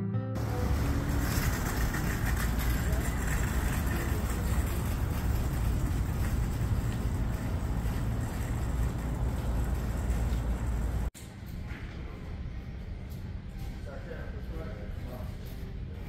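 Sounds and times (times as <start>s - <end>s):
wind buffeting microphone: 0.4s - 11.1s.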